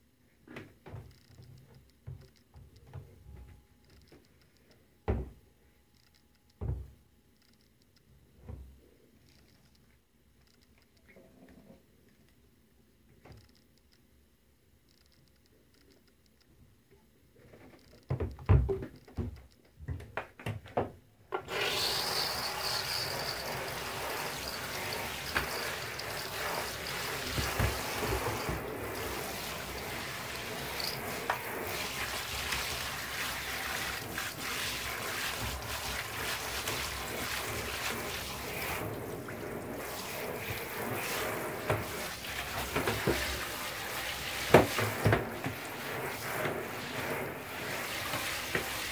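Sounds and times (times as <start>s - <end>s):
shower spraying water: 21.5s - 48.9s.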